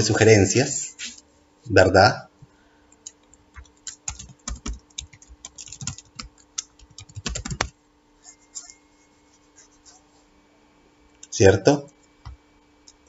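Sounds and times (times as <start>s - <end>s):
typing on computer keyboard: 3.0s - 7.8s.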